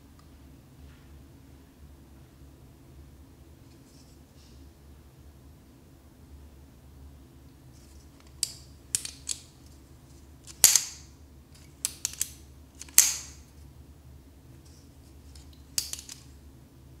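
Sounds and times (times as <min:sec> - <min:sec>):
folding knife clicks and snaps: 0:10.5 - 0:13.4.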